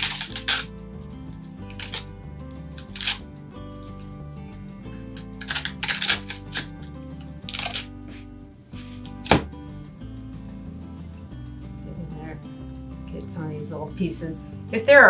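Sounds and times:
paper tearing: 0:00.0 - 0:00.7, 0:01.4 - 0:03.2, 0:04.9 - 0:09.3
background music: 0:00.0 - 0:15.0.

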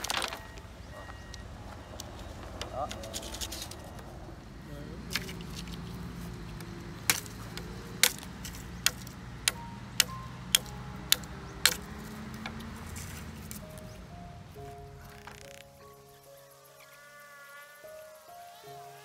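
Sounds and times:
machete chopping bamboo: 0:06.5 - 0:12.8.

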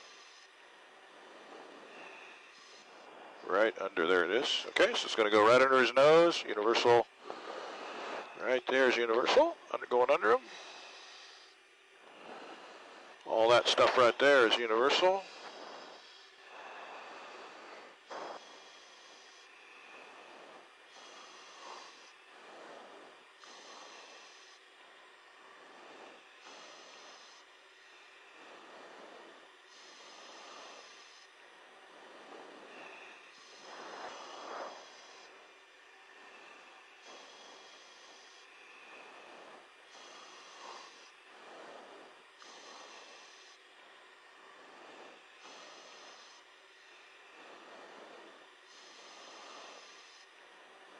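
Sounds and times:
person breathing: 0:00.0 - 0:50.9
intercom hiss: 0:01.2 - 0:11.5, 0:12.2 - 0:24.6
radio channel hiss: 0:01.2 - 0:11.5, 0:12.1 - 0:24.6, 0:25.4 - 0:35.5, 0:36.1 - 0:43.6, 0:44.5 - 0:50.2.

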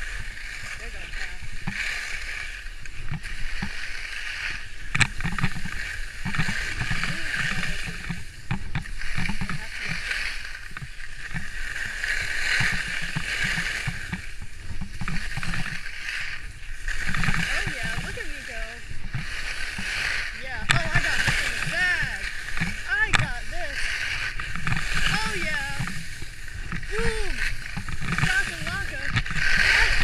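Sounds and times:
skis scraping over snow: 0:00.0 - 0:30.0
wind rumble on microphone: 0:00.0 - 0:30.0.

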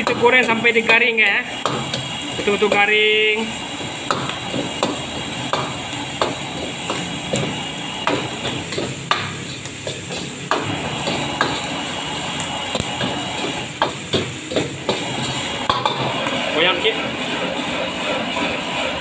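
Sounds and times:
metal utensils scraping a wok: 0:00.0 - 0:19.0
steady frying hiss: 0:00.0 - 0:19.0.

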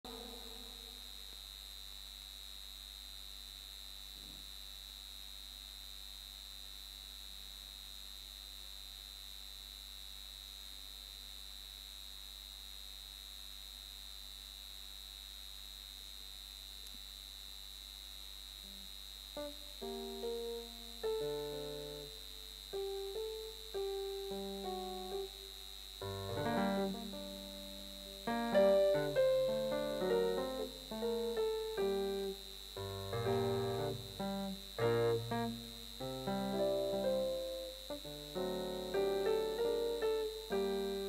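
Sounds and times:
high-pitched whine: 0:00.0 - 0:01.8, 0:18.6 - 0:41.0
electrical mains hum: 0:00.0 - 0:41.0.

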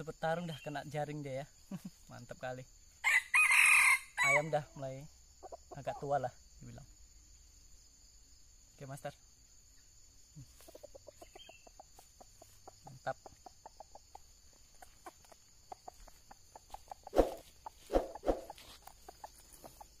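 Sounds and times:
junglefowl clucking: 0:05.4 - 0:06.2, 0:10.4 - 0:20.0.

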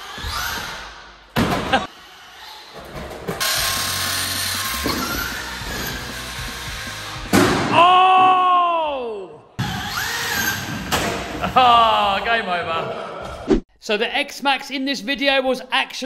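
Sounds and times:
toy car motor whirring: 0:00.0 - 0:01.0, 0:01.9 - 0:07.2, 0:09.6 - 0:10.8.

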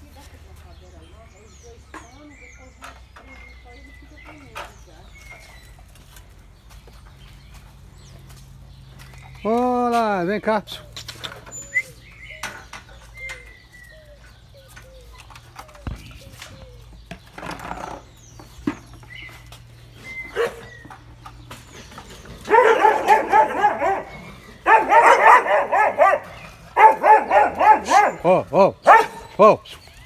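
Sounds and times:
dogs barking excitedly: 0:20.0 - 0:30.0.

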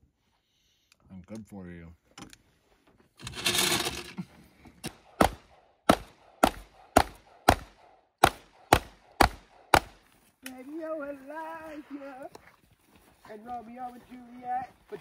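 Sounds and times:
sharp cracks: 0:04.8 - 0:10.6.

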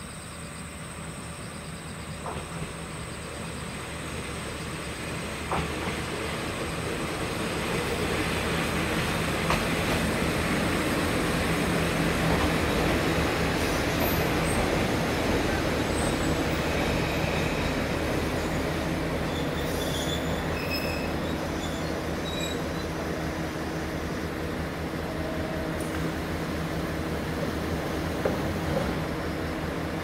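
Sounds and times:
insects trilling and chirping: 0:00.0 - 0:05.4
diesel railcar passing: 0:00.0 - 0:30.0.

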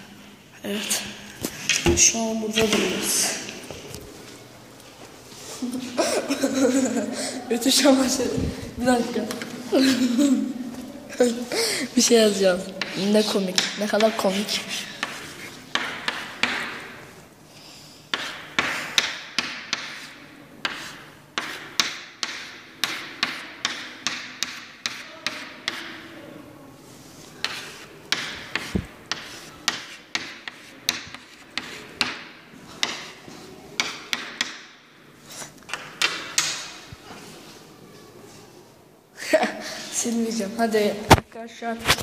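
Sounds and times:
chalk tapping and scraping on blackboard: 0:12.6 - 0:26.1, 0:27.2 - 0:37.4.

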